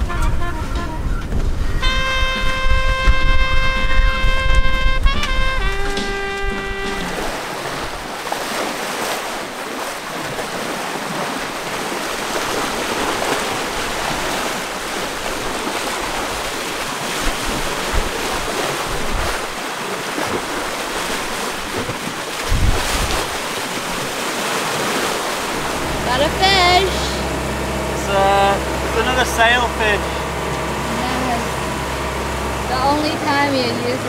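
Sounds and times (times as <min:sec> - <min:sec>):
wind buffeting microphone: 0:00.0 - 0:08.3, 0:10.0 - 0:19.6, 0:20.2 - 0:24.2
water rushing along hulls: 0:00.0 - 0:34.0.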